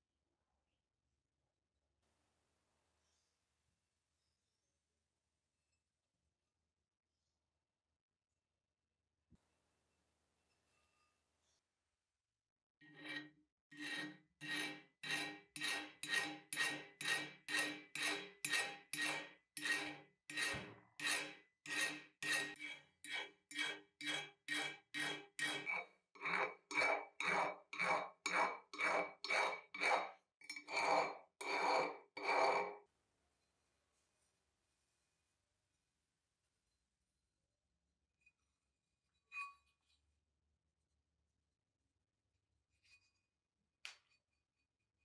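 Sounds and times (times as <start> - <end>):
file rasping on cast iron: 12.9 - 32.8.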